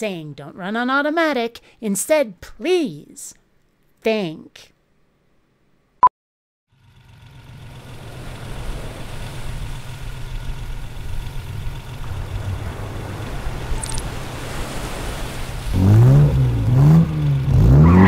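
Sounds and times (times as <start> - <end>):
sports car engine idling: 6.7 - 14.0.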